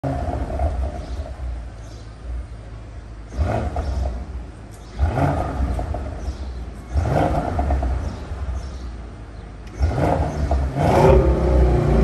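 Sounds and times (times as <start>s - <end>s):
car engine revving: 3.2s - 12.0s.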